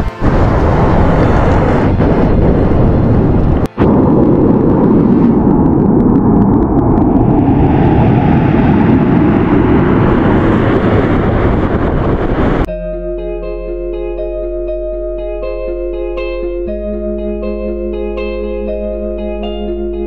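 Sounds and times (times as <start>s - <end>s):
volcano rumbling roar: 0.2s - 12.7s.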